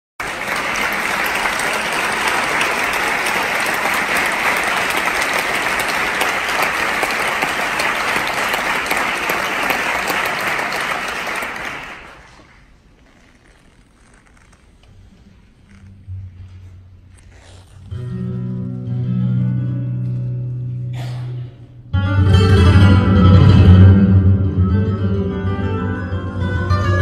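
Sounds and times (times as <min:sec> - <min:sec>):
audience applauding: 0:00.2 - 0:12.9.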